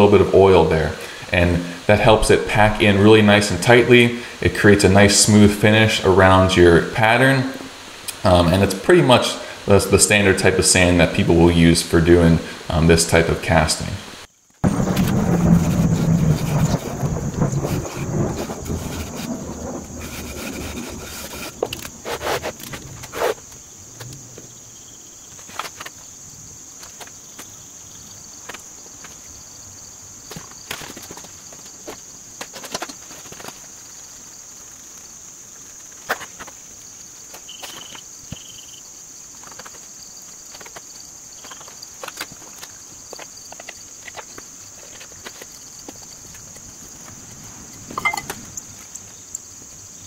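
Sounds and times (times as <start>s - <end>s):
insects droning: 0.0s - 50.0s
wooden board scraping sand: 14.7s - 23.6s.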